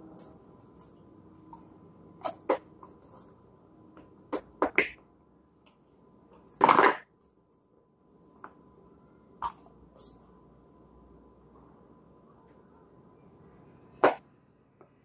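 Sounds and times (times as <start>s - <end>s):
plastic tubs clicking and knocking: 4.0s - 5.0s, 6.4s - 7.1s.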